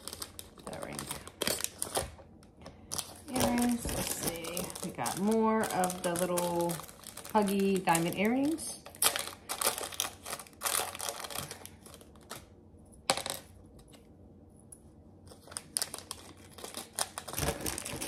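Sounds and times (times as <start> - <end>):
jewelry packaging clicks and clinks: 0.0 - 2.1.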